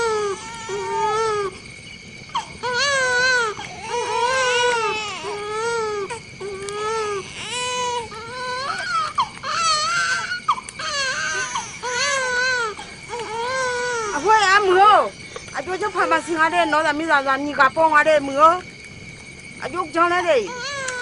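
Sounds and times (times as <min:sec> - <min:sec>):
newborn baby crying: 0:00.0 - 0:01.6, 0:02.3 - 0:14.6, 0:20.4 - 0:21.0.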